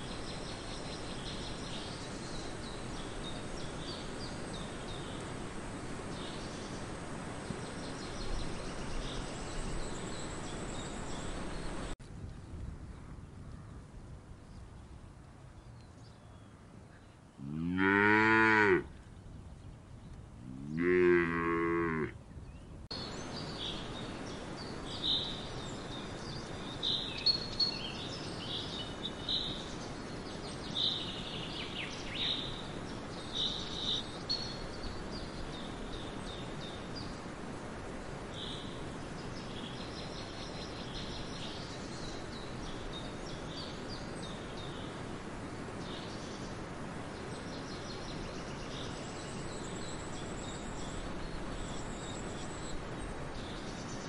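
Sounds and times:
steady background hiss: 0.0s - 12.0s, 12.6s - 54.0s
cattle mooing: 17.4s - 18.9s, 20.6s - 22.2s.

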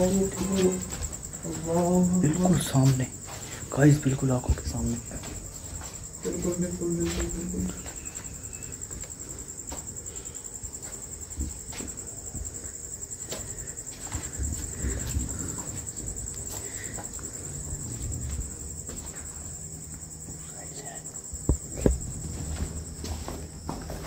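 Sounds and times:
crickets trilling: 0.0s - 24.0s
faint knocks and scuffs: 21.2s - 24.0s.

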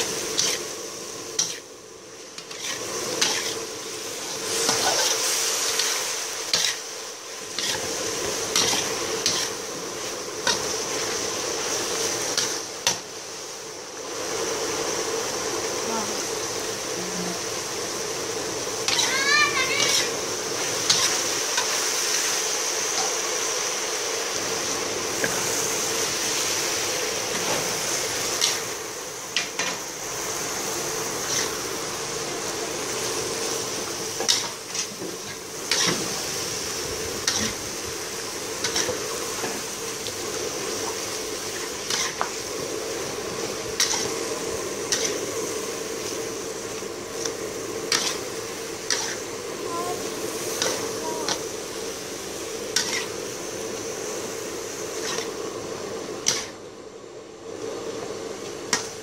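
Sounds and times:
sizzling hiss: 0.0s - 59.0s
metal spatula scraping wok: 0.1s - 1.7s, 2.3s - 11.2s, 18.8s - 23.2s, 27.3s - 28.8s, 31.0s - 31.7s, 33.8s - 46.3s, 47.2s - 49.4s, 50.3s - 51.5s, 52.7s - 53.3s, 54.8s - 55.4s, 56.2s - 56.6s.

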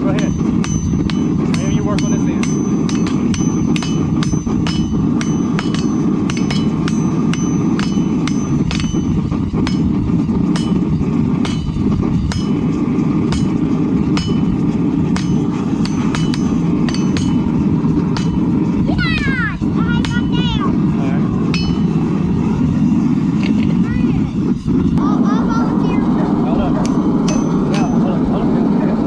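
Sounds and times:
hammers striking steel on anvil: 0.0s - 20.6s, 21.3s - 22.6s, 26.8s - 28.3s
steady low noise: 0.0s - 29.0s.

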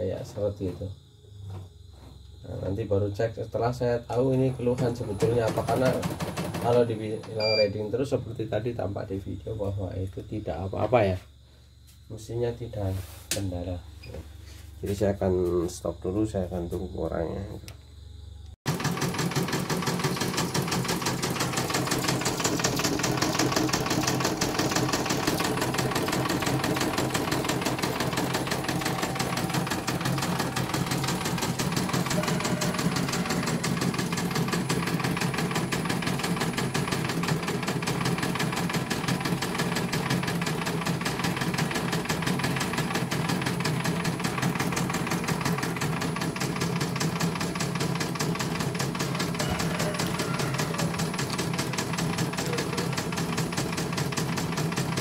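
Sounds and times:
embroidery machine stitching: 4.6s - 7.1s, 18.7s - 55.0s.

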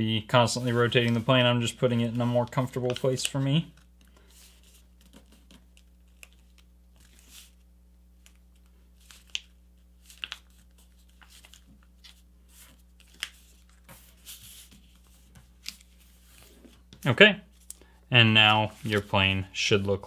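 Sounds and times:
paper rustling and sliding: 0.4s - 7.6s, 9.0s - 16.9s, 18.5s - 19.9s
paper crackling as creased: 9.0s - 16.6s.

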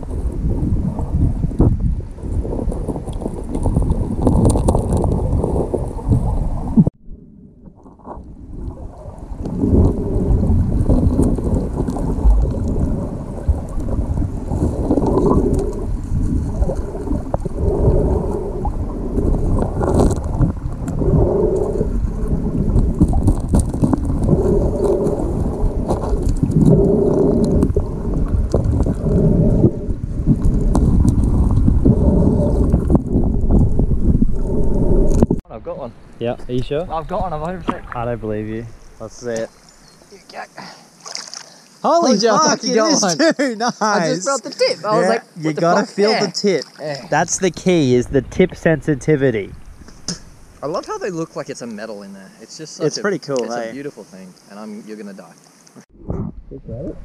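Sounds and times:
muffled underwater river rush: 0.0s - 41.8s, 45.2s - 52.1s, 54.0s - 57.0s
stones knocking underwater: 2.5s - 6.9s, 22.7s - 29.2s, 37.5s - 38.1s.

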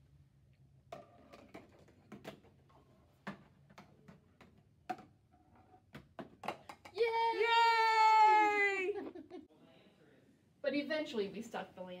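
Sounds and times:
marble rolling through cardboard tubes: 0.8s - 7.0s.

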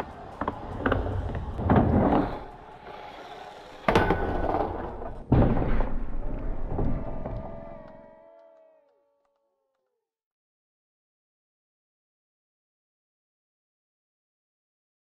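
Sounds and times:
skateboard impacts on ramp: 0.0s - 3.0s
skateboard rolling: 0.0s - 7.9s.

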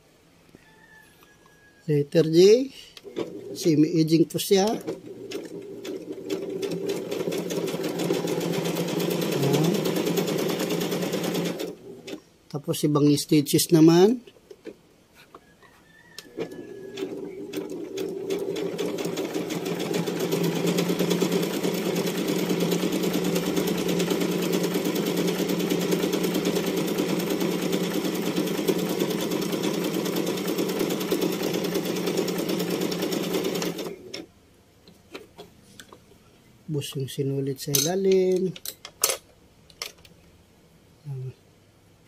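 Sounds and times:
electric sewing machine stitching: 4.6s - 12.2s, 16.4s - 34.2s.

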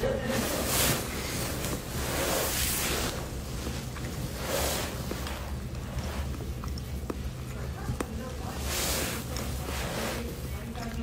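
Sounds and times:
steady low hum: 0.0s - 11.0s
phone rubbing on jacket rustling: 0.3s - 6.3s, 8.6s - 10.6s.

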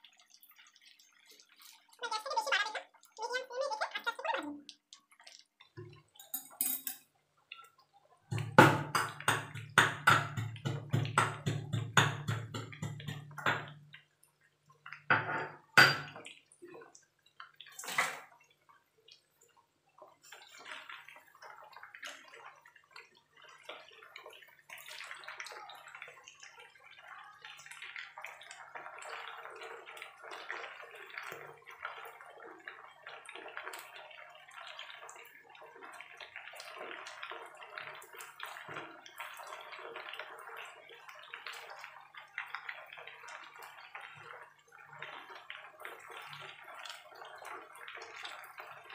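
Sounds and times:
chicken sizzling in hot oil: 0.0s - 48.9s
food knocking in pan: 8.3s - 13.9s.

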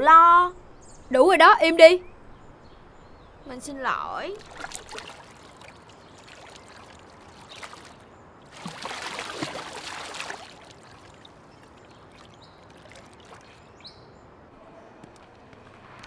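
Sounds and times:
pool water splashing and lapping: 3.0s - 14.5s.

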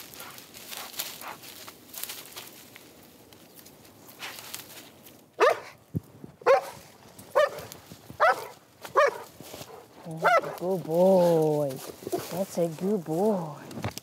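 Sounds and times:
dog barking: 5.4s - 5.8s, 6.4s - 10.6s.

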